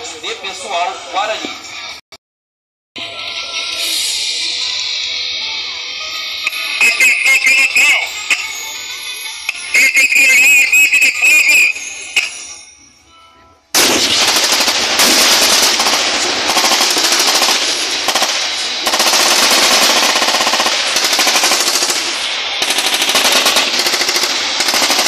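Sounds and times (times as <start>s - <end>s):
music: 0.7s - 2.0s, 3.0s - 13.8s
rapid machine gun and rifle fire: 13.8s - 25.0s.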